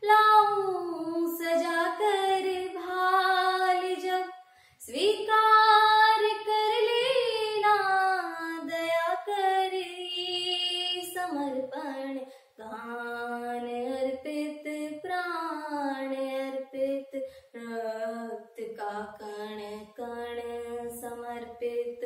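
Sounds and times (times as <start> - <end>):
girl singing unaccompanied: 0.0 - 22.0
singer breathing: 4.4 - 4.8.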